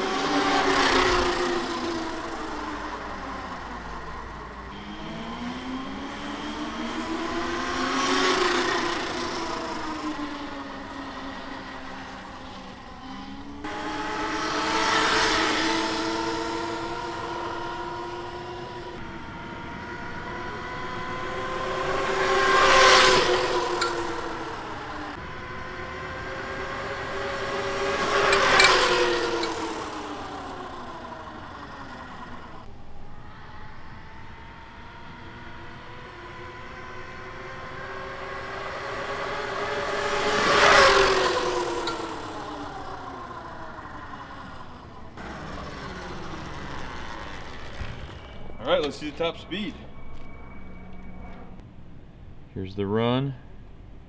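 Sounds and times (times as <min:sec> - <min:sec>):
electric motor whine passing: 0:00.0 - 0:51.6.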